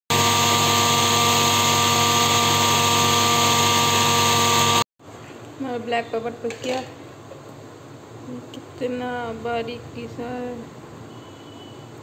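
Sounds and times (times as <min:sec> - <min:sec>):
mixer grinder grinding peppercorns: 0:00.1 - 0:04.8.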